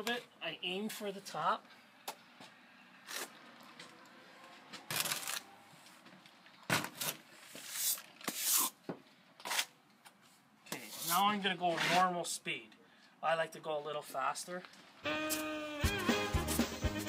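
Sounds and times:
trowel scraping wet stucco: 7.5 - 8.8, 9.4 - 9.7, 10.8 - 12.2.

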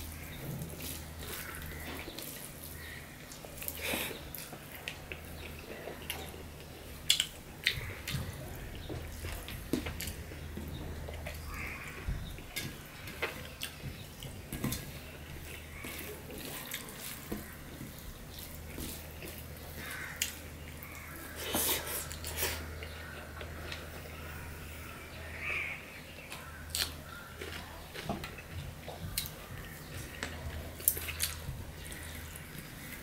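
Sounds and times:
steady low hum: 0.0 - 33.0
chewing: 0.1 - 24.6, 26.2 - 33.0
hand squishing rice on a plate: 12.7 - 24.0.

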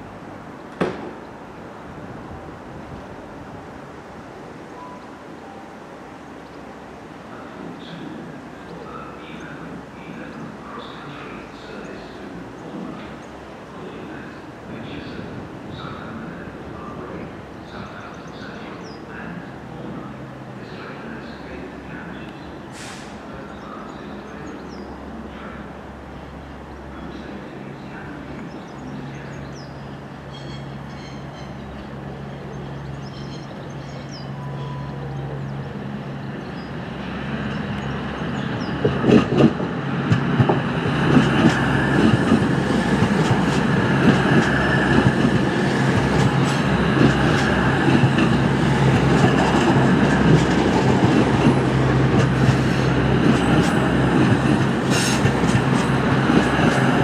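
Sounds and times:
train diesel engines humming: 0.0 - 57.0
train wheels clicking over rail joints: 38.8 - 57.0.

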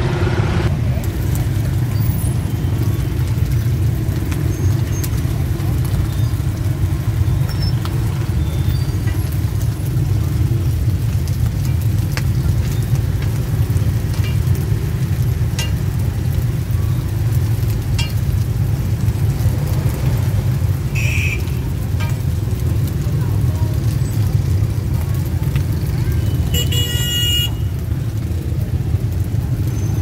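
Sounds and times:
steady low rumble: 0.0 - 26.5
rice frying in oil: 0.1 - 30.0
metal tongs clicking on pan: 15.6 - 15.9.

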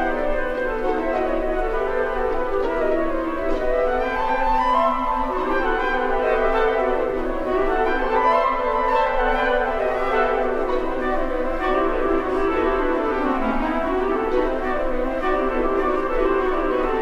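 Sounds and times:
orchestral music with held notes: 0.0 - 17.0.

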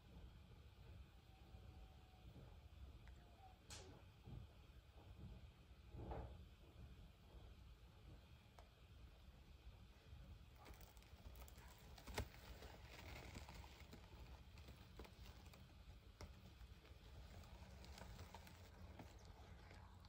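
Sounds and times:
faint rustles: 9.9 - 20.0.

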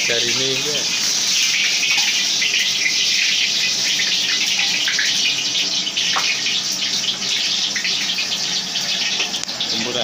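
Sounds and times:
gas burner hissing: 0.0 - 10.0.

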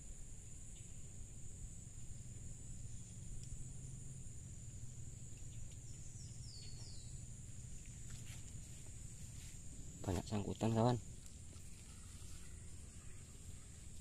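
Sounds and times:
insects droning: 0.0 - 14.0
low steady rumble: 0.0 - 14.0
bird chirps: 5.3 - 7.3.

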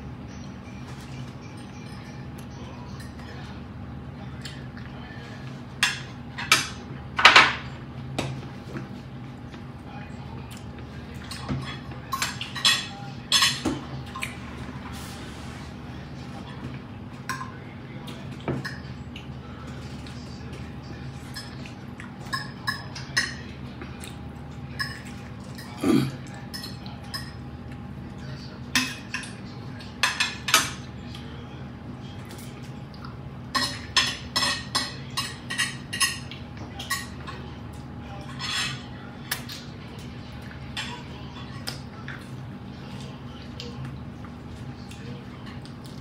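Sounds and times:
cutlery clinking on a plate: 33.5 - 37.5, 38.2 - 39.6.

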